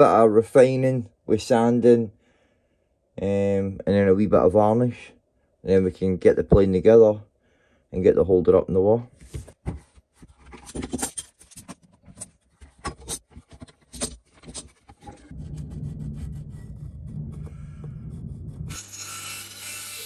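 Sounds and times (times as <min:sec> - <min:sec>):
steady low hum: 0:15.0 - 0:18.8.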